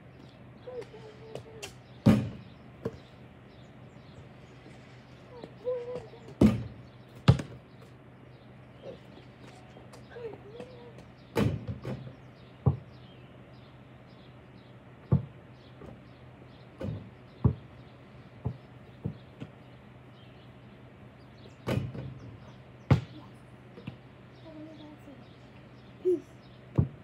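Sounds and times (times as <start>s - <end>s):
basketball thuds: 2.0s - 3.1s, 6.4s - 7.6s, 11.4s - 13.0s, 15.0s - 16.0s, 16.8s - 17.8s, 18.4s - 19.6s, 21.6s - 22.3s, 22.9s - 23.2s, 26.7s - 27.0s.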